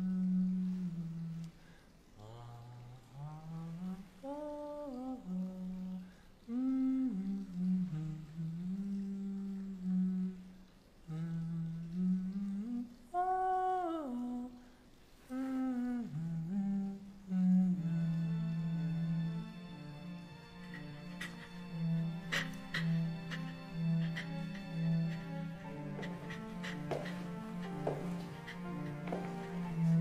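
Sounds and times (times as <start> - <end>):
man humming a slow melody: 0.0 - 30.0.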